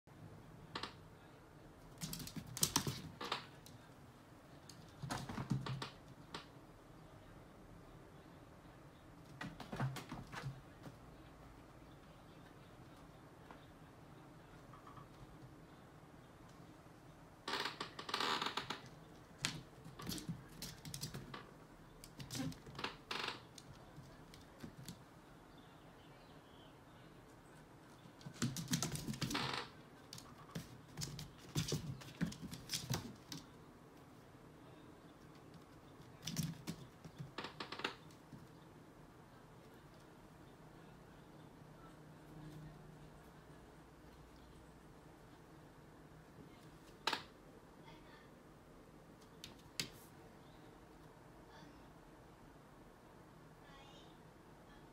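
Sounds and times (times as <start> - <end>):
cat claws scrabbling on wood floor: 2.0 - 3.6, 18.7 - 21.5, 30.1 - 33.5.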